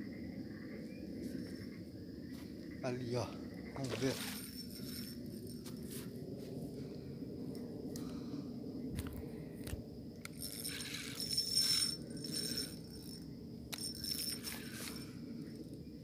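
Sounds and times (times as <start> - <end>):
high insect trill: 0.0 - 16.0
fishing reel rattling and clicking: 4.0 - 5.2, 10.2 - 15.0.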